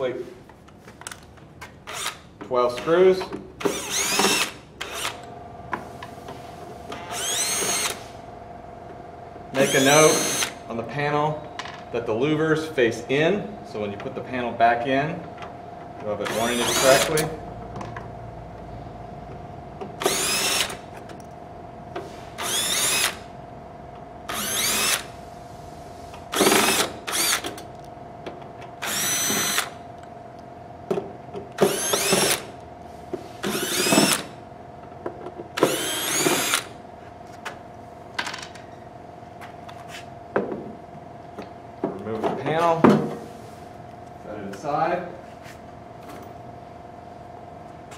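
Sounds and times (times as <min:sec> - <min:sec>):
steady hum: 0:00.0 - 0:47.9
cordless drill spinning: 0:01.9 - 0:02.2, 0:03.7 - 0:05.3, 0:07.0 - 0:08.0, 0:09.6 - 0:10.6, 0:16.2 - 0:17.2, 0:20.0 - 0:20.8, 0:22.4 - 0:23.3, 0:24.3 - 0:25.1, 0:26.3 - 0:27.4, 0:28.8 - 0:29.8, 0:31.7 - 0:32.5, 0:33.4 - 0:34.3, 0:35.6 - 0:36.7.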